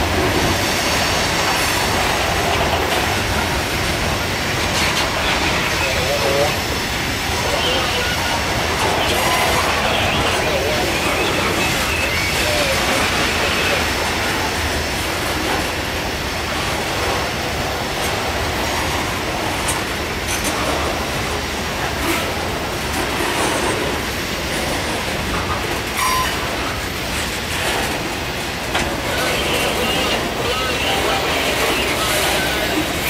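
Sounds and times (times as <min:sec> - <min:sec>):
train wheels rumbling on rail: 0:00.0 - 0:33.0
faint wheel squeal: 0:26.0 - 0:26.6.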